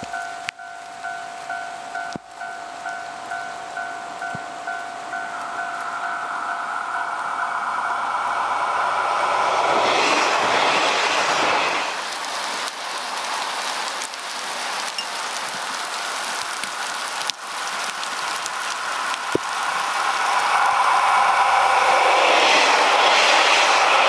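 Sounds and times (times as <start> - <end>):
level crossing bell ringing: 0.1 - 7.5.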